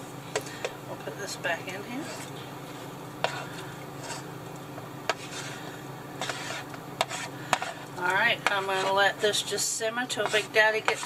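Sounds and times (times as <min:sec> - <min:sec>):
steady low hum: 0:00.0 - 0:11.0
wooden spatula scraping a plate: 0:01.8 - 0:02.4, 0:03.2 - 0:04.3, 0:05.1 - 0:11.0.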